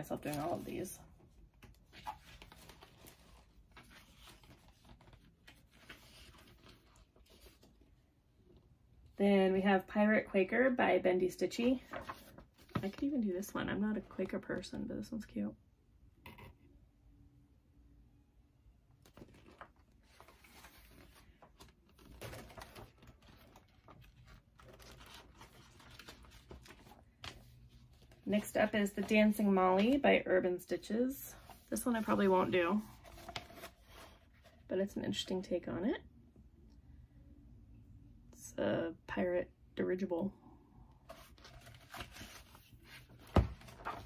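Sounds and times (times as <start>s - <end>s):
paper sheets rustling: 1.9s - 7.7s, 11.7s - 13.1s, 19.0s - 30.0s, 31.4s - 34.5s, 41.1s - 44.0s.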